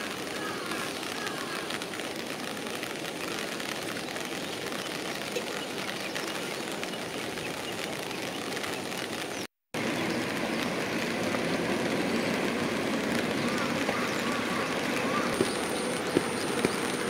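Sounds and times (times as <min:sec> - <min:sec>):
steady rain falling: 0:00.0 - 0:17.0.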